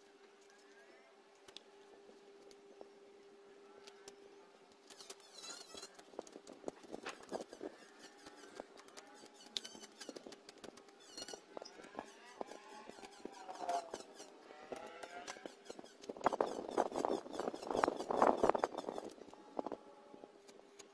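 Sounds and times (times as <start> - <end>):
faint gliding squeaky tones: 0.0 - 20.9
knife scraping bamboo: 4.9 - 19.2.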